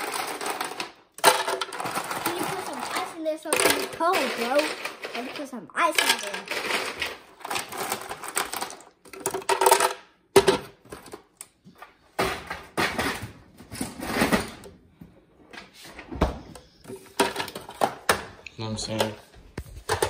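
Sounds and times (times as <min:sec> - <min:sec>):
ice cubes clattering into blender: 0:00.0 - 0:11.1.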